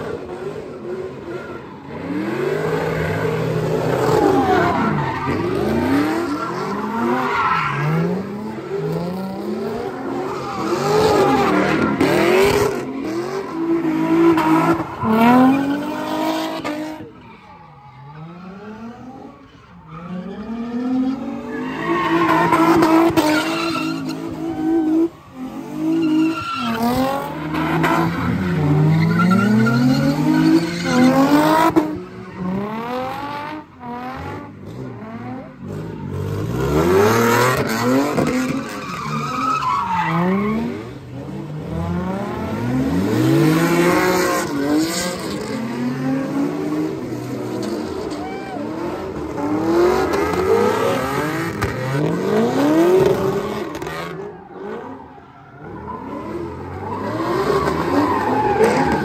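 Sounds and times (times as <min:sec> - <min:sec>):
car engine revving: 0:00.0 - 0:17.1
tires squealing: 0:00.0 - 0:59.0.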